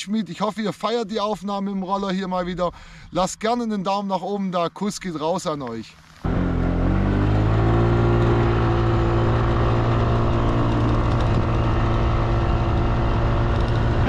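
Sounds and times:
road noise: 5.6 - 14.0
scooter engine running: 6.2 - 14.0
wind noise: 7.4 - 14.0.

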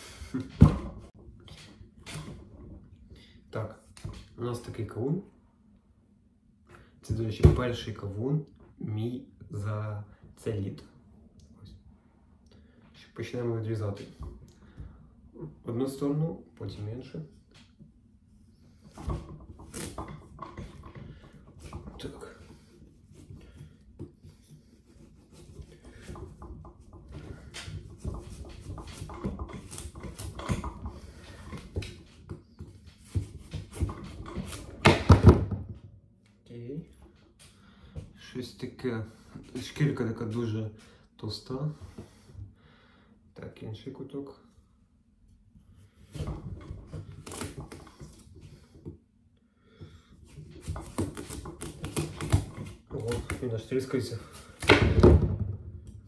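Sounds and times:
knife cutting through watermelon: 50.4 - 53.5.

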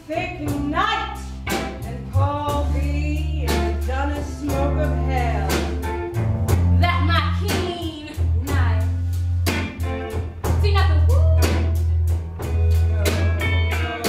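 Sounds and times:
bass line: 0.0 - 14.0
drum hits: 9.4 - 14.0.

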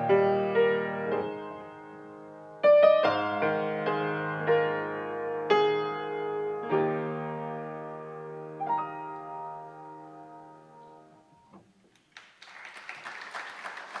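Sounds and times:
audience applauding: 11.9 - 14.0.

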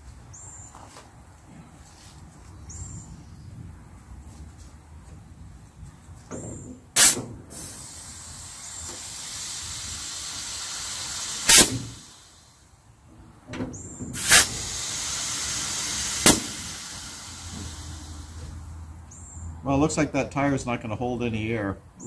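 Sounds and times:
compressed air hissing: 7.0 - 12.7, 14.1 - 18.8
loud air blasts: 7.0 - 12.7, 14.1 - 18.9.

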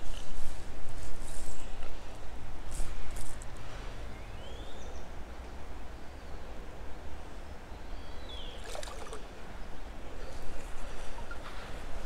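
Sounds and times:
flowing river water: 8.4 - 11.4.

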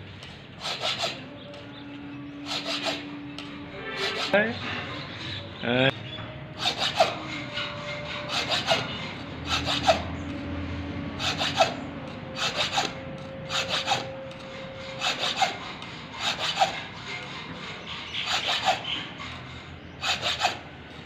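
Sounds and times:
file rasping on metal blade: 0.6 - 5.4, 6.6 - 10.3, 11.2 - 20.7.

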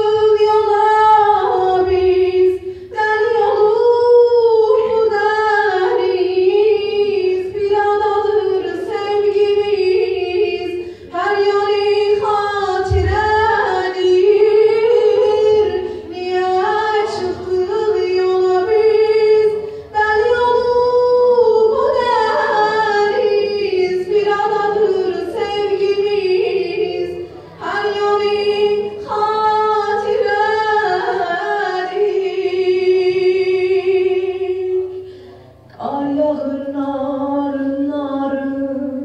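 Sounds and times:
woman singing into microphone: 0.0 - 39.0.

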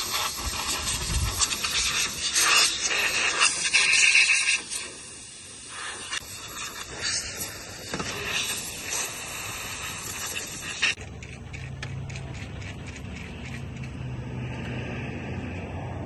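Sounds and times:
air blow gun hissing: 0.0 - 11.0.

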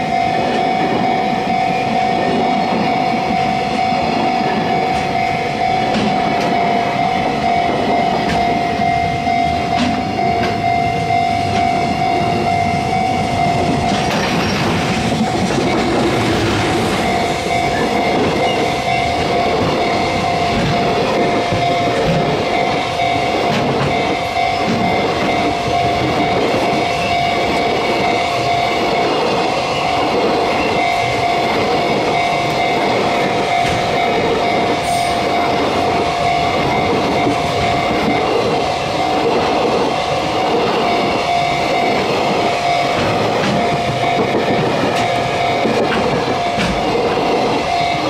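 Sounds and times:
level crossing alarm tone: 0.0 - 48.0
train wagons rumbling past: 0.0 - 48.0
wheels clattering over rail joints: 13.7 - 22.6.

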